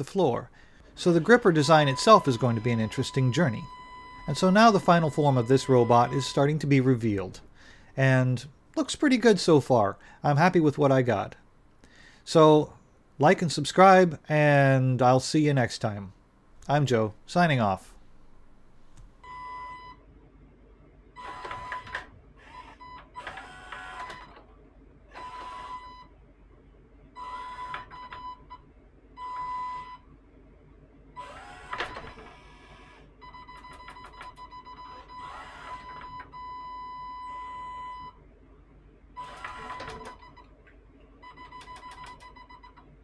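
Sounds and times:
robot arm gear motors whirring: 0:31.2 - 0:31.9.

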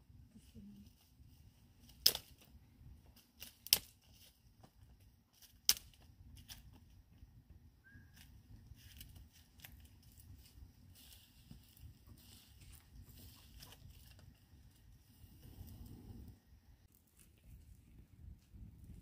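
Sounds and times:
faint fire crackling: 0:00.0 - 0:19.0
twigs snapping in fire: 0:01.8 - 0:02.5, 0:03.2 - 0:04.3, 0:05.4 - 0:06.7.

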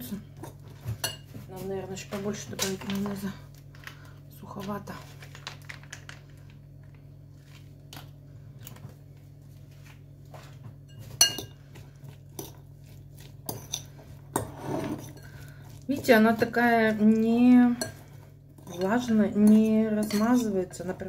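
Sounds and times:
fork clinking against ceramic bowl: 0:10.9 - 0:11.6.

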